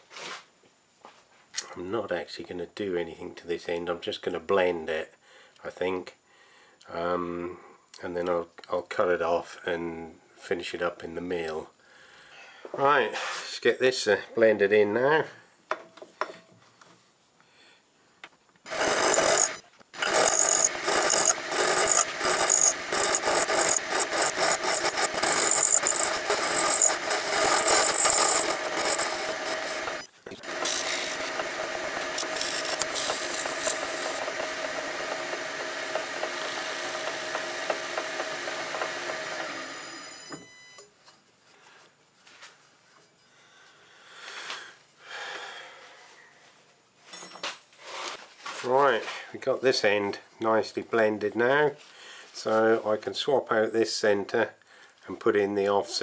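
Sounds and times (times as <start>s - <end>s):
file rasping on metal: 18.7s - 34.4s
lathe running hum: 18.7s - 40.2s.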